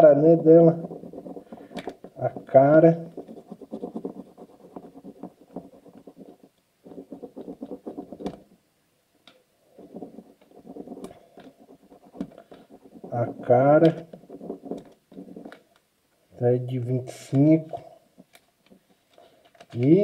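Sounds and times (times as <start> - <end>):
pen scribbling on paper: 0.0 - 8.5, 9.7 - 15.6.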